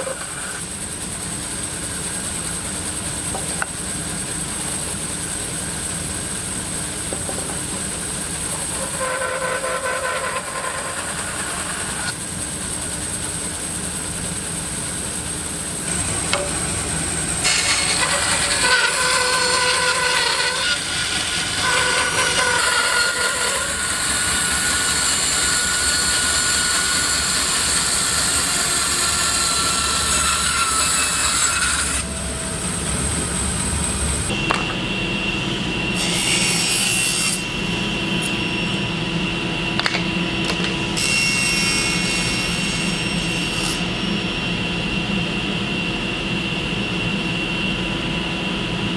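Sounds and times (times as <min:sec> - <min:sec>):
table saw running: 0:00.0 - 0:45.3
bandsaw cutting wood: 0:08.6 - 0:12.2, 0:15.8 - 0:32.1.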